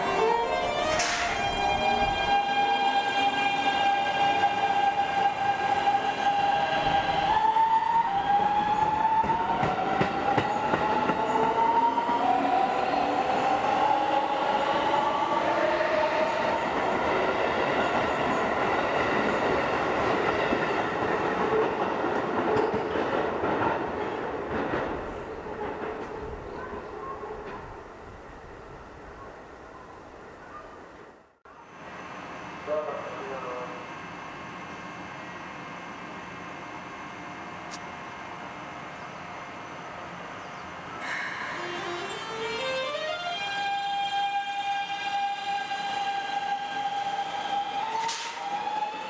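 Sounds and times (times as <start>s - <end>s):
train wheels clickety-clack: 9.2s - 11.3s, 17.9s - 26.4s.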